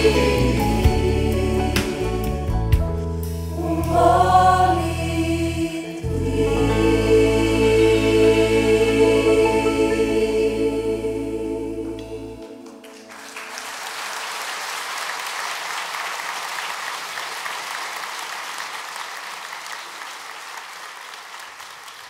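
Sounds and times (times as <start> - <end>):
choir singing held chord: 0.0 - 2.8, 3.5 - 13.6
audience applauding: 12.6 - 22.0.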